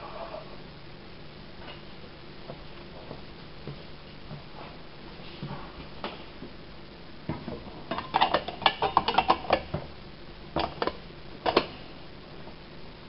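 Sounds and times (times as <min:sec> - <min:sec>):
kitchenware clinking: 0:07.9 - 0:09.7.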